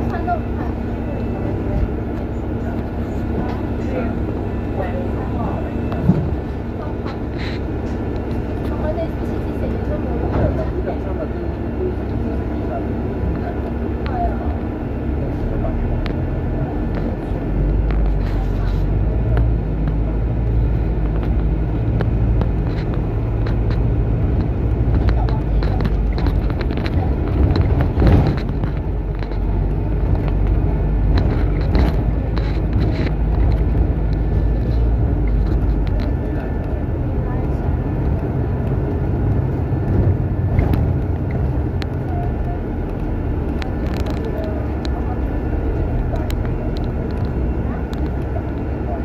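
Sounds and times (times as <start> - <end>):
bus engine and road rumble: 0.0 - 49.0
light clicks and rattles: 21.0 - 45.2.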